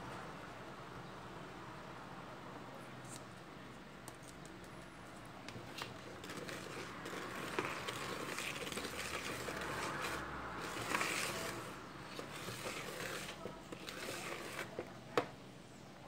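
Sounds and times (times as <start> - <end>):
whisk scraping in plastic bowl: 6.0 - 14.9.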